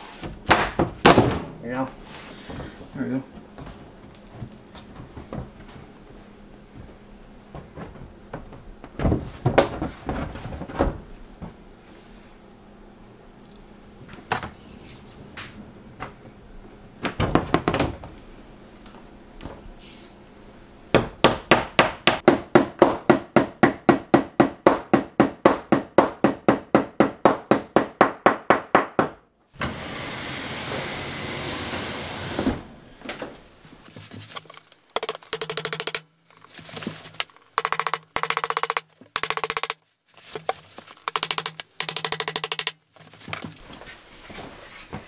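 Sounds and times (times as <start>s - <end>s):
hammer striking nail: 21.0s - 29.2s, 35.0s - 36.0s, 37.6s - 39.8s, 41.1s - 42.8s.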